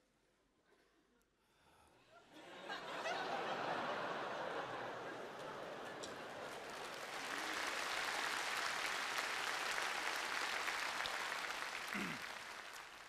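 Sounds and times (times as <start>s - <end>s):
audience laughing: 2.3s - 7.6s
audience applauding: 2.7s - 13.0s.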